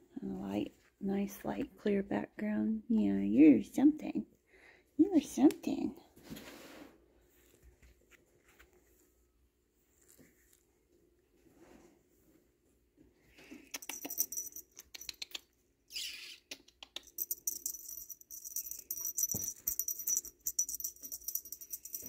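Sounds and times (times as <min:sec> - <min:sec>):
cat toy bell jingling: 0:13.7 - 0:15.3, 0:17.0 - 0:22.0.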